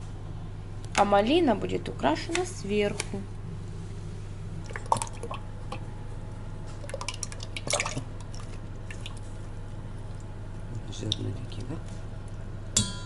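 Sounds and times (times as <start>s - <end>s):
low hum: 0.0s - 13.0s
clicks and drips: 4.6s - 5.9s, 6.7s - 9.3s, 11.0s - 12.4s.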